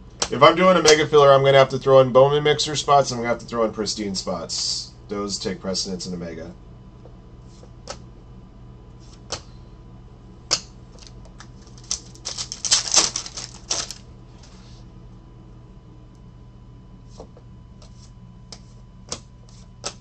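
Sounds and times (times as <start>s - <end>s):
trading cards clicking: 10.5s - 14.0s
foil wrappers crackling: 10.9s - 14.6s.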